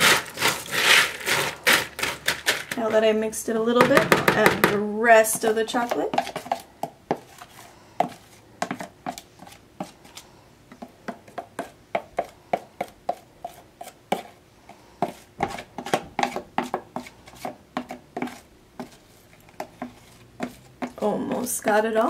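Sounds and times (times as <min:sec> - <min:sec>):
utensil knocking plastic container: 0:03.8 - 0:06.5.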